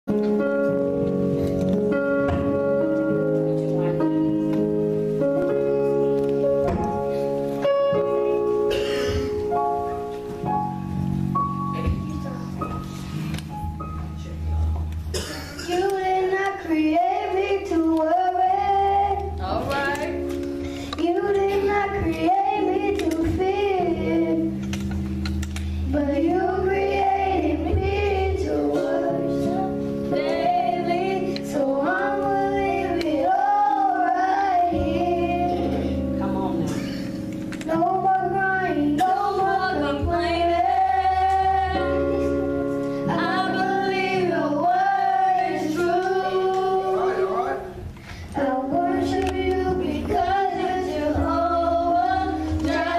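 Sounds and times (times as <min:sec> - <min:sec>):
instrumental backing with chords: 0:00.1 - 0:52.9
children singing into microphones: 0:15.1 - 0:52.9
girl singing long gliding notes: 0:15.7 - 0:24.8, 0:25.8 - 0:36.6, 0:37.6 - 0:47.5, 0:48.3 - 0:52.9.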